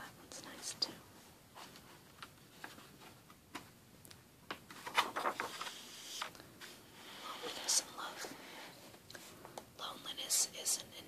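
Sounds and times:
book page turning: 4.5 - 8.3.

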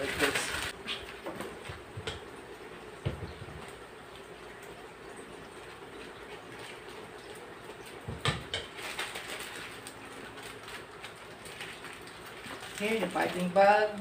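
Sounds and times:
plastic piping bag crinkling: 0.0 - 0.8, 8.6 - 14.0
room hum: 0.0 - 14.0.

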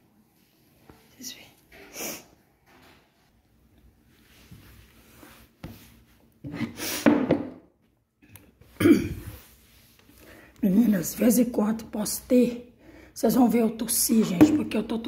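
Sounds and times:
knock on table: 7.1 - 7.6
woman coughing loudly: 8.8 - 9.4.

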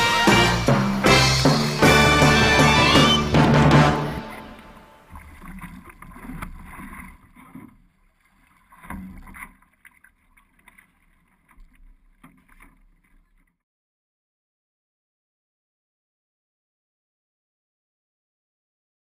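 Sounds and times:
water splashing against canoe hull: 0.0 - 13.5.

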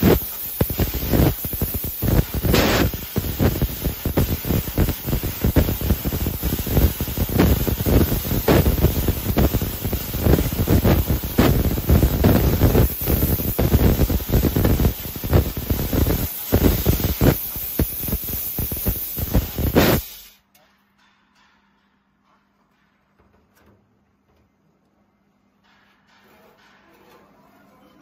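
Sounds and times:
laser cutter hissing: 0.0 - 20.4.

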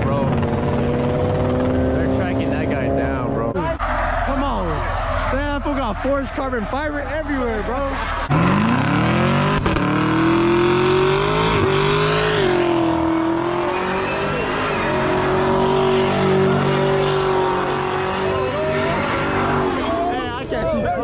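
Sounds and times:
car engine revving: 0.0 - 20.7
tyres squealing: 3.5 - 9.5, 11.3 - 20.3.

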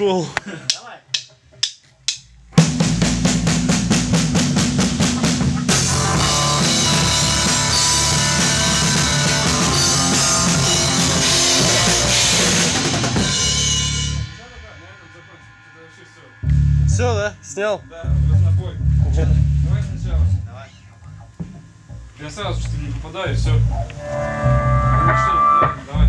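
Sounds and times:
cymbals: 1.6 - 18.2
rock band playing: 2.6 - 14.4.

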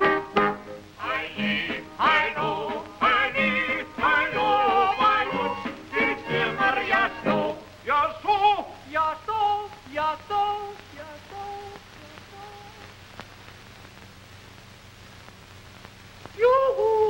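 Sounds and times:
soundtrack hiss: 0.0 - 17.0
cartoon voices singing: 1.0 - 12.9, 16.4 - 17.0.

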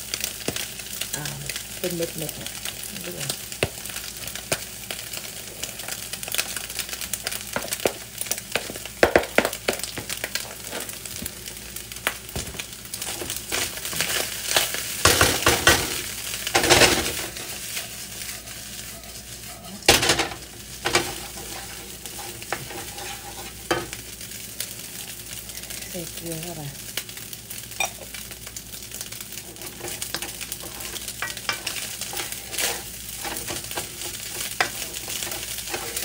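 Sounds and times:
rice sizzling in a wok: 0.0 - 36.0
wooden spatula stirring and scraping: 17.2 - 19.9, 20.8 - 23.8, 29.3 - 36.0.

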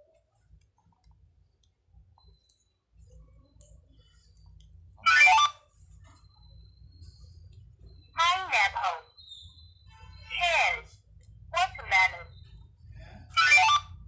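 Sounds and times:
faint clicks and taps: 0.0 - 5.0, 5.8 - 8.0.

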